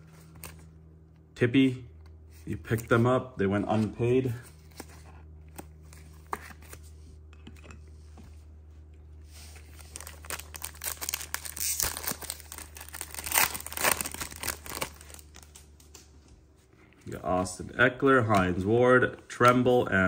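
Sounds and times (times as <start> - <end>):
low steady hum: 0.0 - 20.0
wrapper crinkling and tearing: 9.5 - 15.7.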